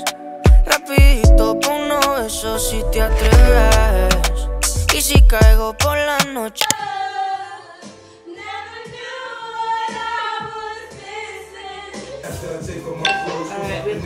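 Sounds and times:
music with heavy bass: 0:00.0 - 0:06.5
faint steady beat: 0:00.5 - 0:01.8, 0:03.3 - 0:05.8
woman singing wavering notes: 0:13.1 - 0:13.8.

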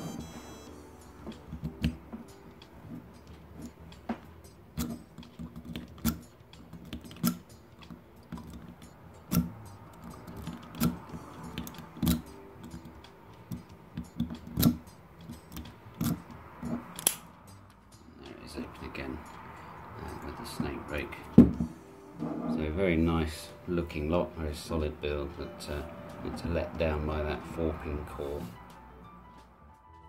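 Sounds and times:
lock pick clicks and scratches: 0:04.7 - 0:12.9, 0:13.5 - 0:17.2.

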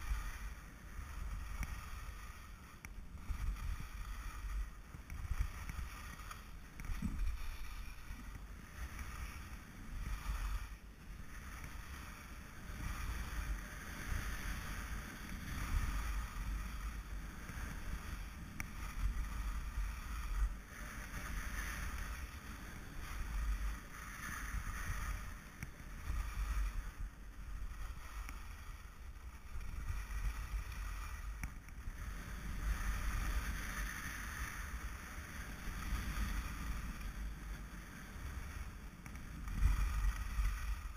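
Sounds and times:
skis scraping over snow: 0:00.0 - 0:40.9
wind rumbling on microphone: 0:00.0 - 0:40.9.

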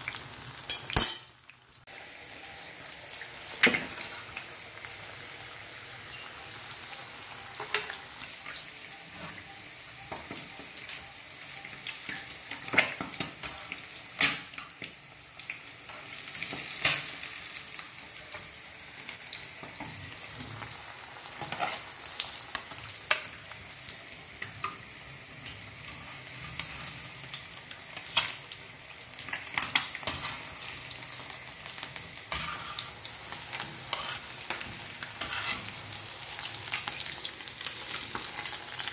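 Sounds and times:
eggs sizzling in hot oil: 0:00.0 - 0:38.9.

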